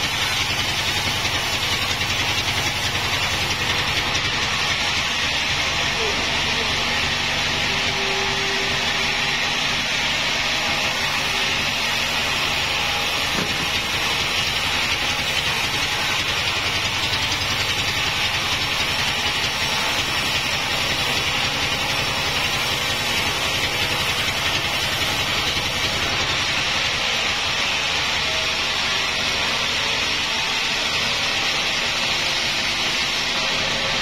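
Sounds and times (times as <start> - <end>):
band saw ripping through log: 11.4 - 27.9.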